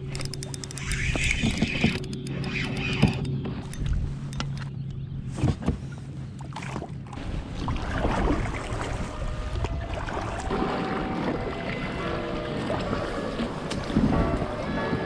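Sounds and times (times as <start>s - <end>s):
paddle splashing through water: 5.3s - 15.0s.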